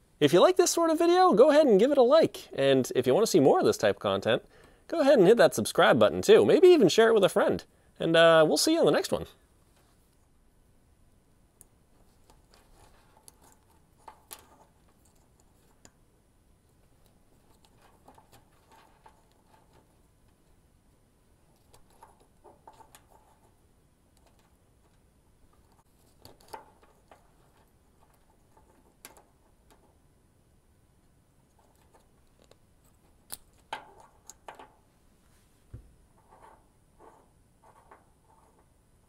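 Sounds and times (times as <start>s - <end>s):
small metal clicks and scrapes: 12.0s - 16.0s, 17.0s - 20.4s, 21.5s - 30.0s, 31.5s - 34.7s.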